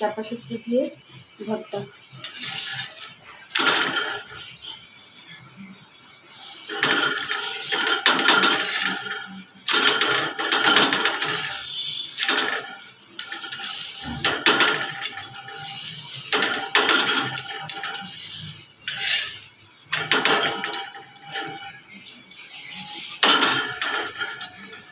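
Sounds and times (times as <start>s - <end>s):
metal spatula scraping iron pan: 2.2s - 4.5s, 6.3s - 24.9s.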